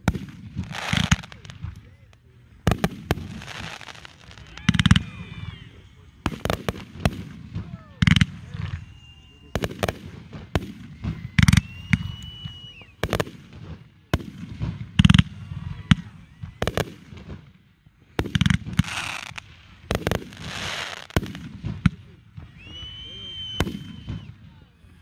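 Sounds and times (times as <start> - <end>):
firework hiss: 0.0 - 17.4, 18.0 - 25.0
firework shells booming: 0.0 - 24.4
high firework whistle: 3.2 - 6.8, 8.0 - 13.4, 14.1 - 17.3, 22.4 - 25.0.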